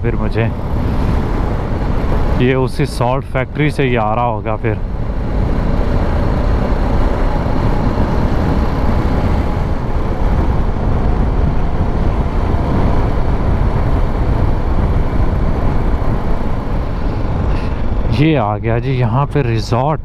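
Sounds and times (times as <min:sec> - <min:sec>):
wind on microphone: 0:00.0 - 0:19.4
motorcycle engine running: 0:03.4 - 0:18.1.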